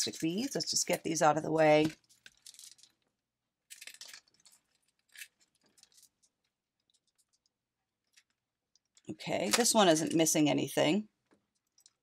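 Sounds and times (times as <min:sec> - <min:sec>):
jewelry clicking and jingling: 0:02.0 - 0:03.0.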